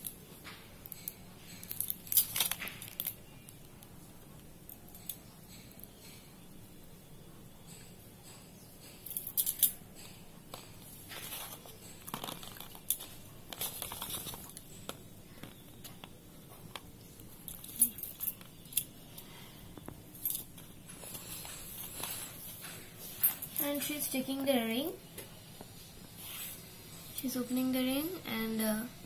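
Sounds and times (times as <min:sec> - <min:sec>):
paper rustling: 0:11.1 - 0:15.1.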